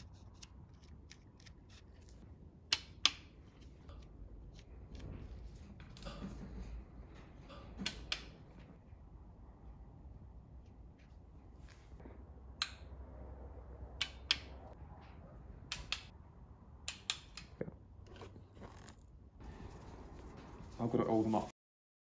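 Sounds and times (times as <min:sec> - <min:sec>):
tool ticks and taps on bolts: 0:02.7 - 0:03.3, 0:14.0 - 0:14.5, 0:15.7 - 0:16.1, 0:16.8 - 0:17.6.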